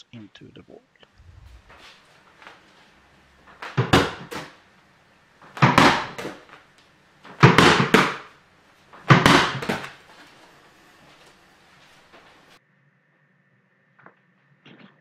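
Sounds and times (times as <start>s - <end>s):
foam ball hitting with knocks: 3.5s - 4.6s, 5.4s - 6.6s, 7.2s - 8.3s, 9.0s - 10.1s.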